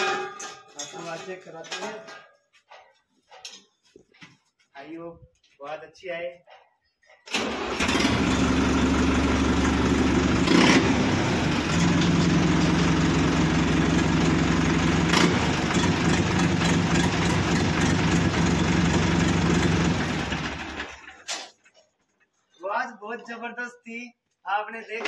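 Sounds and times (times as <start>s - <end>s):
tractor diesel engine idling loudly: 7.3s - 21.1s.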